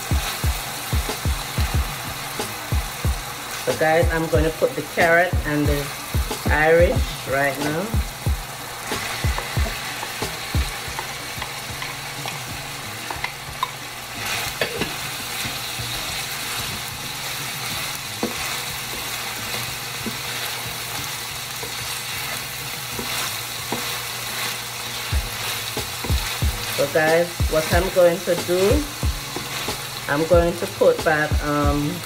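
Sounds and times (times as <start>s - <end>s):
vegetables sizzling in oil: 0.0s - 32.0s
wooden spatula scraping a pan: 21.6s - 28.7s.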